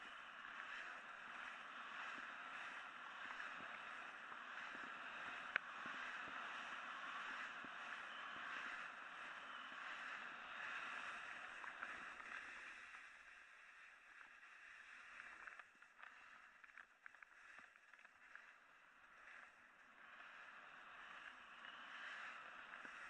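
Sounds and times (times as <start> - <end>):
snowboard sliding over snow: 0.0 - 23.0
small clicks: 4.7 - 6.0, 15.1 - 19.6.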